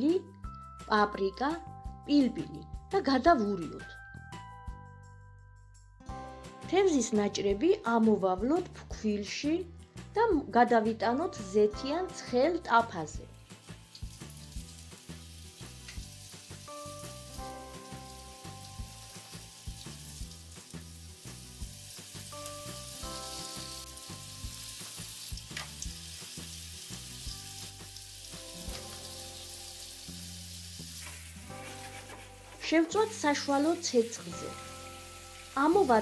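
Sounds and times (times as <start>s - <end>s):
fish sizzling in hot oil: 13.1s - 36.0s.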